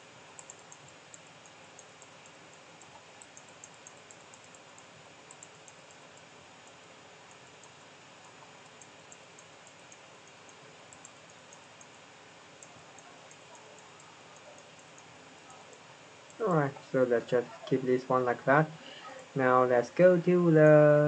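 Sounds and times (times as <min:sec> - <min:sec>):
faint room tone hiss: 0:00.0 - 0:21.0
computer mouse clicks: 0:00.4 - 0:15.1.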